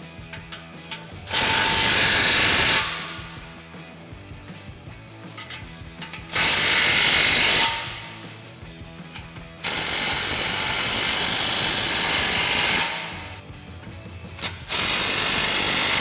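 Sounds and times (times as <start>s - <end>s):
impact wrench running: 0.3s - 3.6s, 5.4s - 8.4s, 9.0s - 13.4s, 14.4s - 16.0s.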